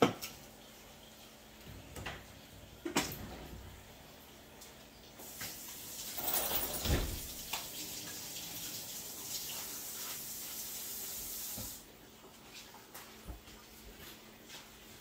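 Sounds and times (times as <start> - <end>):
faucet running into sink: 5.2 - 11.8.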